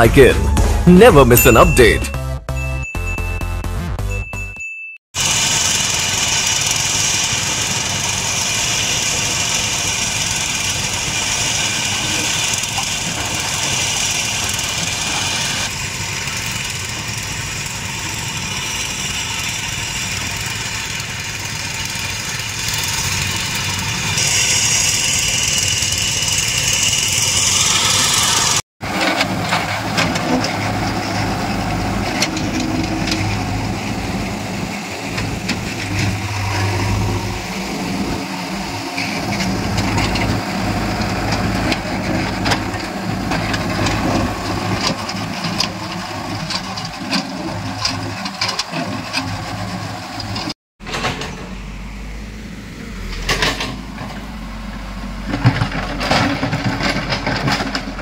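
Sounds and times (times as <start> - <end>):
diesel engine running: 0.0 - 4.1, 5.2 - 58.0
diesel engine idling: 5.2 - 50.5.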